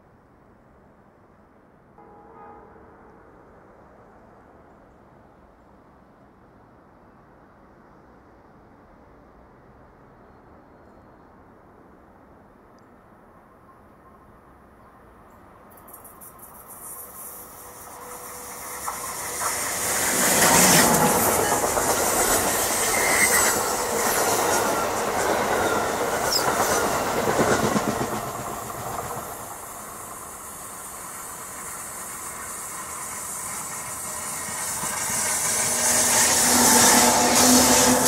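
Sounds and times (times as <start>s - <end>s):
approaching train: 0.0s - 38.0s
train wheels rumbling on rails: 15.7s - 38.0s.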